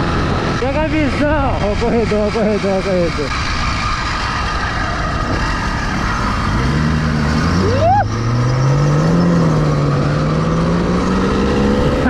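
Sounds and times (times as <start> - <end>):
rushing wind: 0.0 - 12.0
short rising squeal: 3.4 - 10.8.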